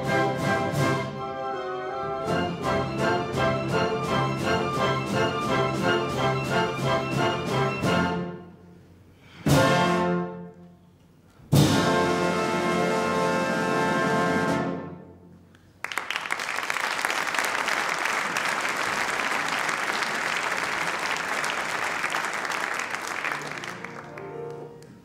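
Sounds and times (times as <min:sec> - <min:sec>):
orchestra holding a chord: 0:00.0 - 0:08.4
audience applause: 0:15.8 - 0:25.0.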